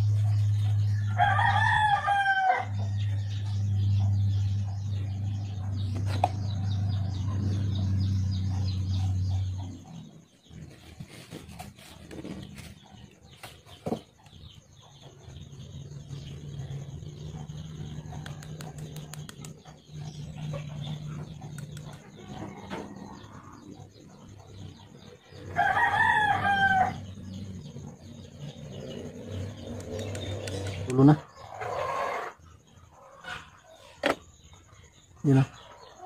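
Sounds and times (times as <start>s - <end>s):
steady low hum: 0.0s - 31.6s
rooster crowing: 0.8s - 4.0s, 25.4s - 27.2s, 31.4s - 32.4s.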